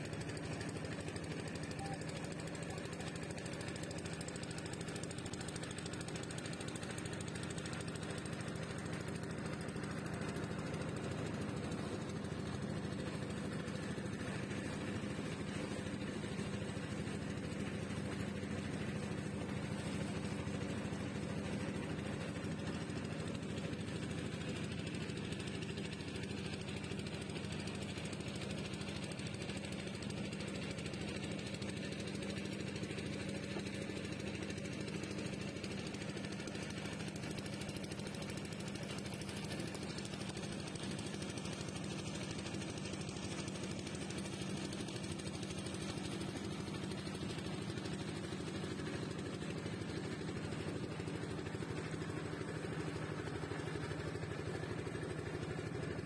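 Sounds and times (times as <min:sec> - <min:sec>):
boat engine knocking: 0:00.0 - 0:56.0.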